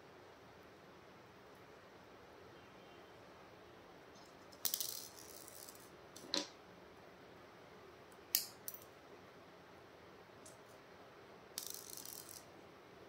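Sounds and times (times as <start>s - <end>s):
stones and beads clicking: 4.5s - 5.9s, 11.6s - 12.5s.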